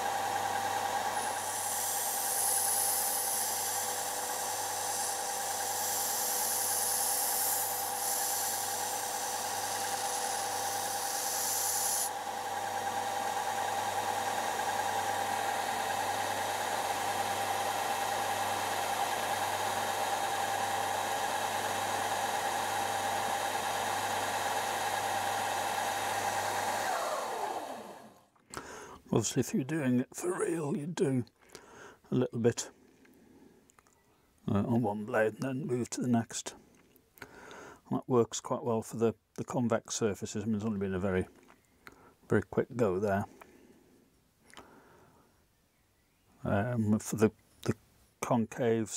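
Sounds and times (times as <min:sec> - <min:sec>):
belt sander motor whine: 0:00.0 - 0:28.3
metal hissing on sanding belt: 0:01.1 - 0:12.2.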